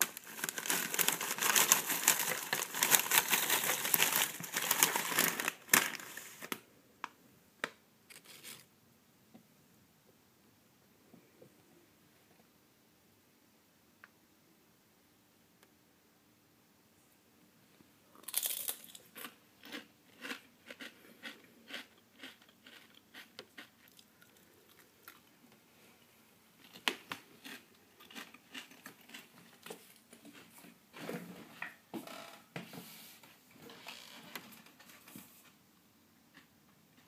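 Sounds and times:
crunching potato chips: 0:00.0 - 0:06.4, 0:18.2 - 0:25.3, 0:26.6 - 0:29.7.

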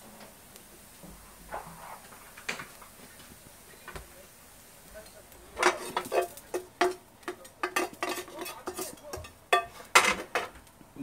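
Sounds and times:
metal knife scraping frying pan: 0:05.6 - 0:10.5.

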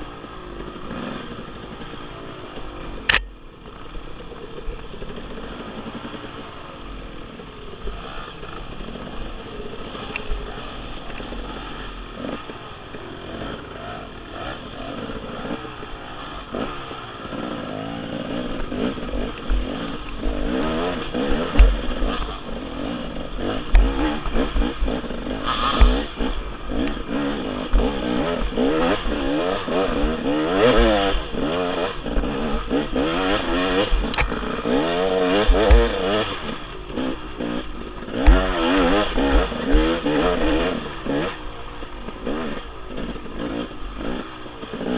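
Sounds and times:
dirt bike engine revving: 0:00.0 - 0:44.9
thumps and clatter of bike: 0:21.4 - 0:22.3, 0:23.4 - 0:25.0, 0:35.3 - 0:36.4.

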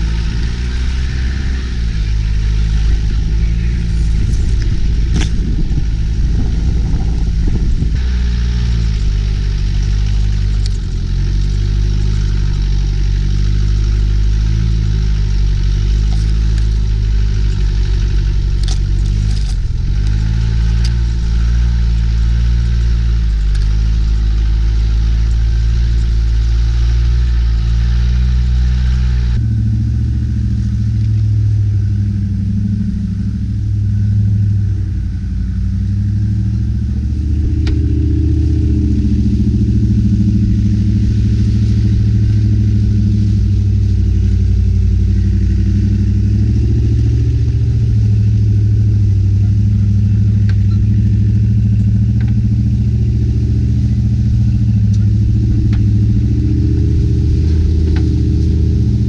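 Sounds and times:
engine running at low revs: 0:00.0 - 0:59.0.

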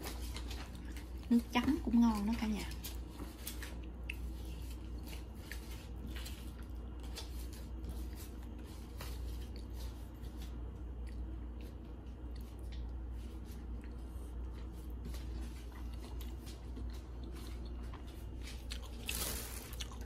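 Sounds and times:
steady low hum: 0:00.0 - 0:20.0
crunching crispy food: 0:18.4 - 0:20.0.

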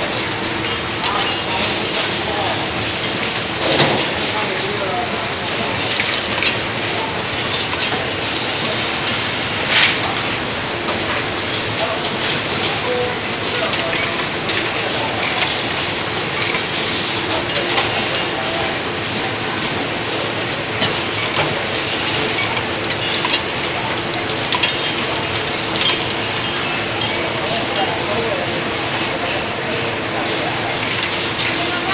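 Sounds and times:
conveyor machine clattering: 0:00.0 - 0:31.9
sharp machine clicks: 0:20.8 - 0:27.0
glass vials clinking: 0:20.8 - 0:27.9.

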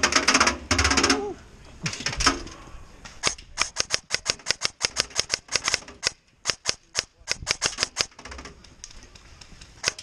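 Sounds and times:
airsoft rifle rapid fire: 0:03.2 - 0:08.2.

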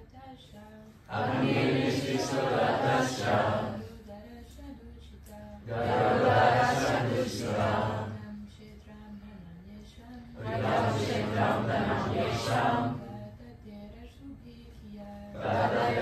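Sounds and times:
group of voices chanting: 0:01.1 - 0:03.9, 0:05.7 - 0:08.2, 0:10.4 - 0:13.1, 0:15.4 - 0:16.0.

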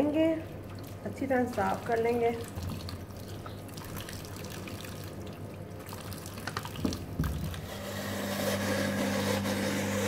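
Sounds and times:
tap water running into steel sink: 0:05.9 - 0:07.7.

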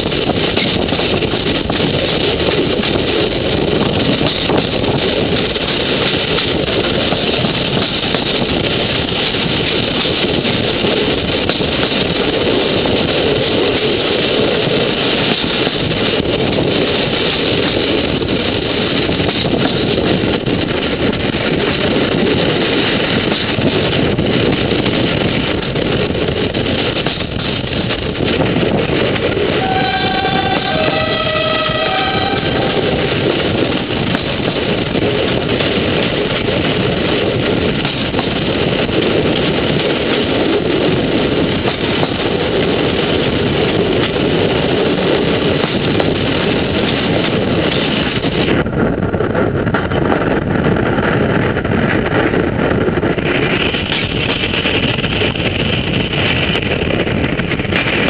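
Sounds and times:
loud rushing noise: 0:24.5 - 0:48.0.

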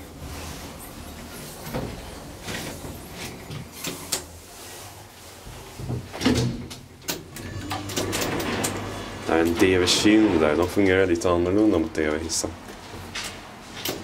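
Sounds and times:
elevator door clicking and clunking: 0:06.0 - 0:10.9.

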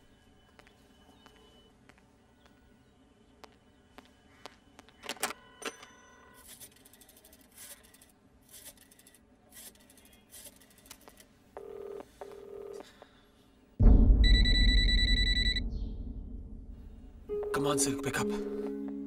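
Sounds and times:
telephone ring-back tone: 0:11.6 - 0:12.8.

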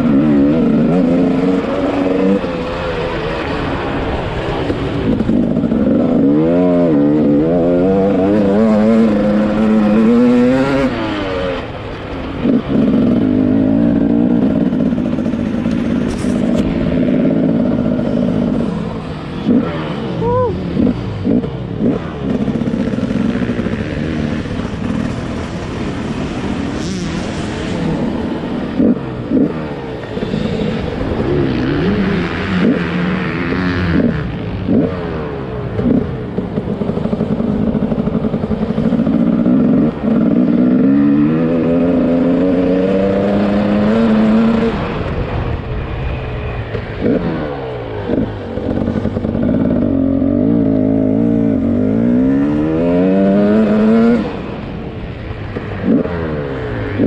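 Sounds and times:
motocross bike engine revving: 0:00.0 - 0:45.7, 0:46.7 - 0:54.7, 0:55.4 - 0:57.0.

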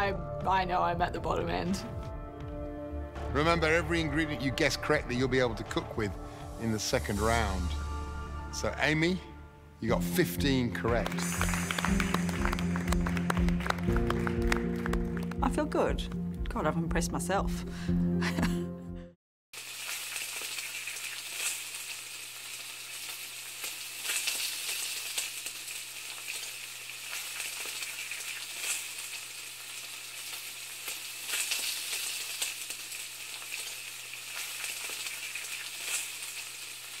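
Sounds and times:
crackling sizzling hiss: 0:04.2 - 0:09.2, 0:10.9 - 0:13.2, 0:19.6 - 0:37.0.

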